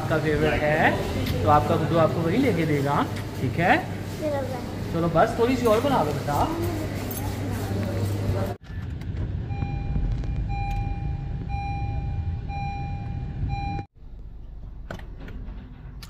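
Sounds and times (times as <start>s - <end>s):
dashboard warning chime beeping: 9.5s - 13.9s.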